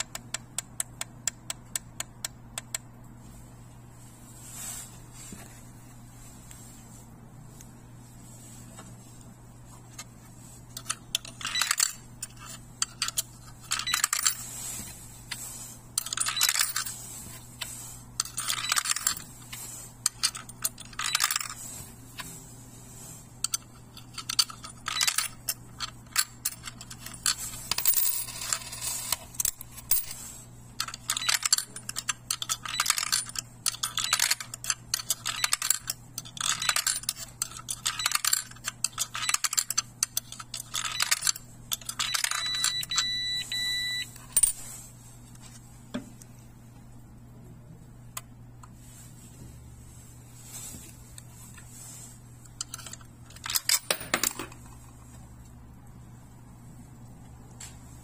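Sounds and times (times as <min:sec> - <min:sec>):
coins clattering through acceptor: 0:10.8 - 0:15.4, 0:16.0 - 0:17.1, 0:18.2 - 0:21.7, 0:23.4 - 0:30.2, 0:30.8 - 0:44.7, 0:52.6 - 0:54.8.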